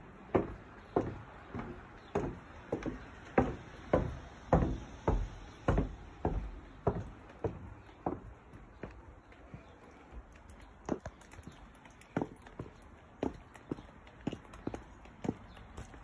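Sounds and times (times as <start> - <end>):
footsteps on wooden boards: 0.3 - 16.0.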